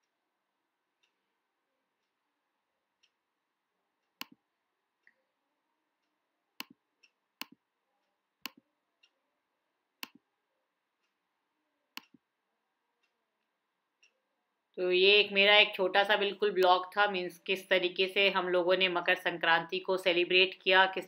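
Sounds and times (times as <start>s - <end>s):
softer click: 6.0s - 7.6s, 10.0s - 10.2s, 11.9s - 12.2s
sharp clicks: 10.0s - 10.2s, 11.9s - 12.2s.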